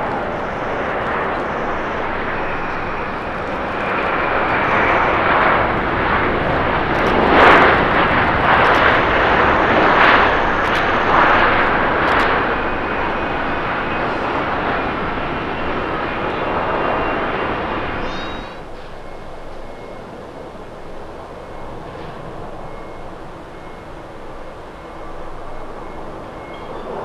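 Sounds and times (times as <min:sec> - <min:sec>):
jet engines rushing: 0:00.0 - 0:27.0.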